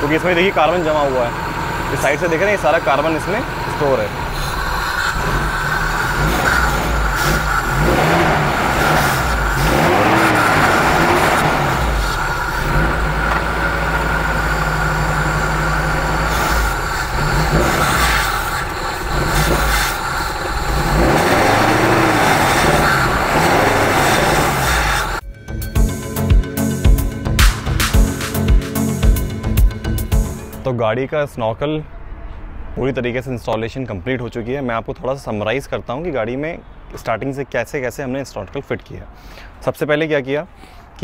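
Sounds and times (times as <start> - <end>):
car engine revving: 0.0 - 25.2.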